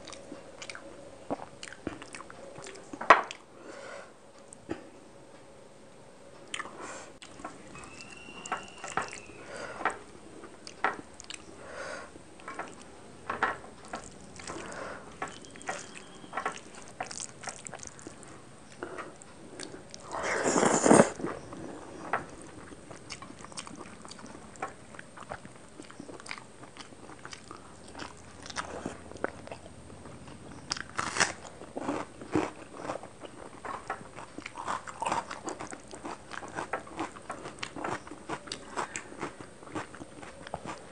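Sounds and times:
chewing and bites: 0:13.8 - 0:40.9.

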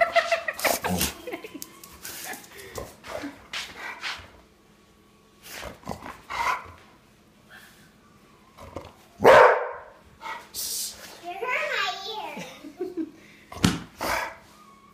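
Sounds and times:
dog barking: 0:09.2 - 0:10.0.

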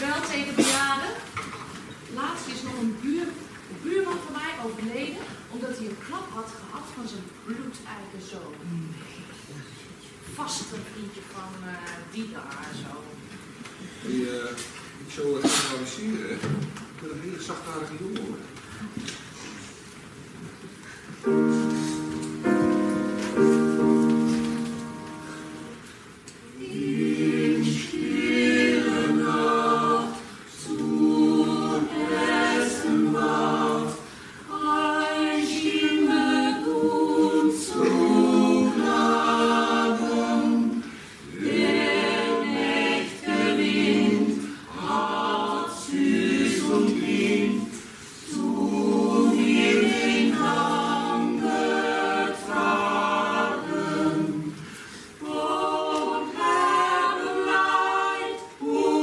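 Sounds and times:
choir singing: 0:21.2 - 0:59.0.

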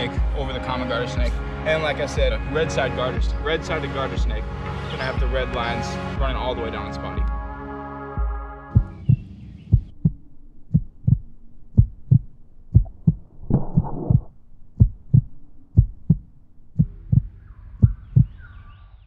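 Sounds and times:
heartbeat double thump: 0:08.7 - 0:18.4.

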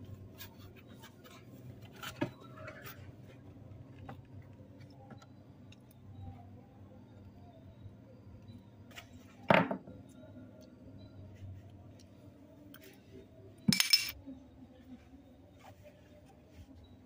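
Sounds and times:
small objects clattering: 0:13.7 - 0:14.2.

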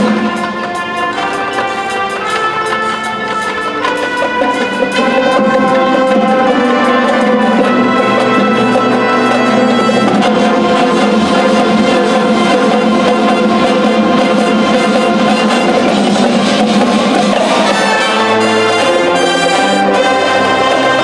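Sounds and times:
marching band brass chords: 0:00.0 - 0:21.0.

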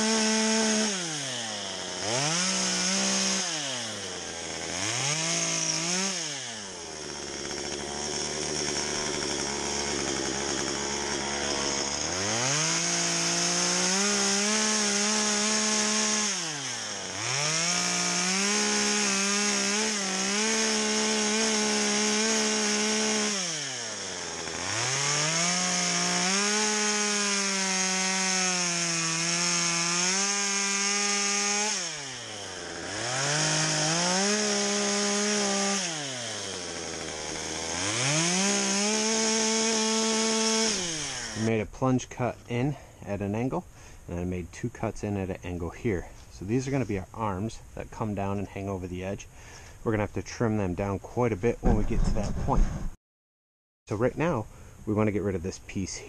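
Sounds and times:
chainsaw cutting log: 0:00.0 - 0:51.0, 0:51.6 - 0:53.0.

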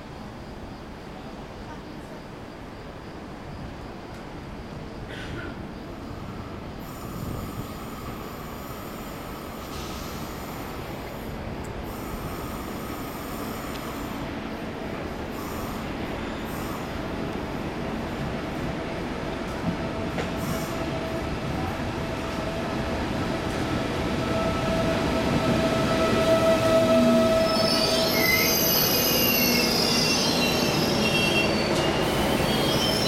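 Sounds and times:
train wheels rumbling on rails: 0:03.3 - 0:33.0
high-pitched brake squeal: 0:24.2 - 0:33.0.

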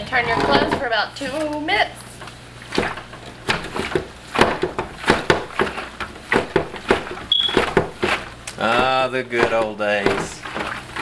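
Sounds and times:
laundry drum knocks and thuds: 0:02.7 - 0:11.0
brief squeak: 0:07.3 - 0:07.6.

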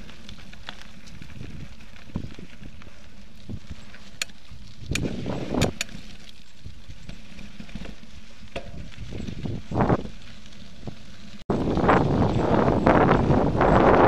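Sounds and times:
bike tyres rumbling on dirt: 0:00.0 - 0:14.0
wind noise gusts: 0:03.4 - 0:03.8, 0:04.5 - 0:06.0, 0:08.6 - 0:14.0
sharp clicks: 0:04.2 - 0:06.0.

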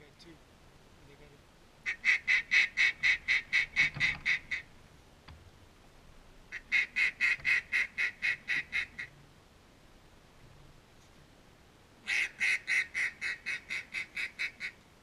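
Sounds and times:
duck call quacks: 0:01.8 - 0:04.7, 0:06.5 - 0:09.1, 0:12.1 - 0:14.8.

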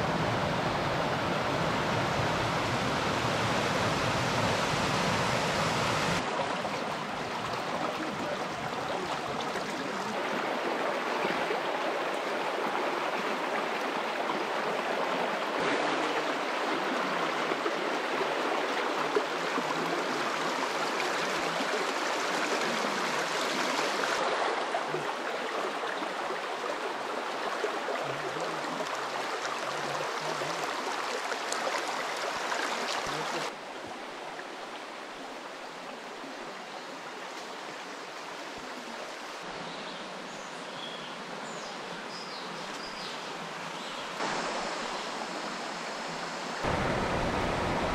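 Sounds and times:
water rushing over rocks: 0:00.0 - 0:33.6, 0:43.4 - 0:47.9.

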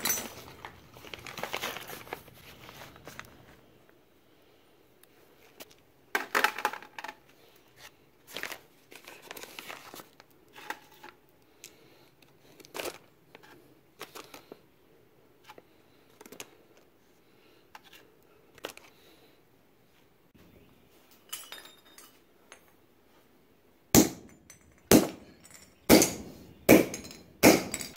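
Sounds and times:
plastic bag crinkling: 0:00.0 - 0:03.6.

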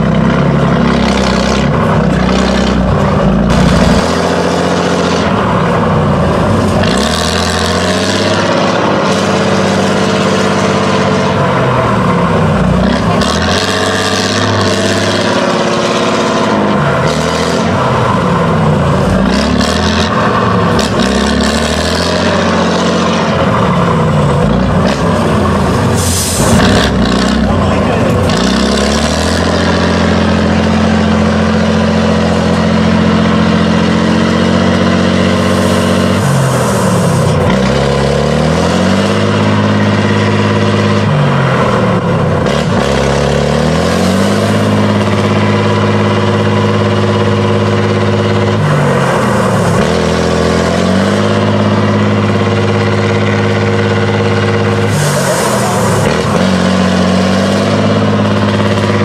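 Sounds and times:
truck diesel engine revving: 0:00.0 - 0:59.0.

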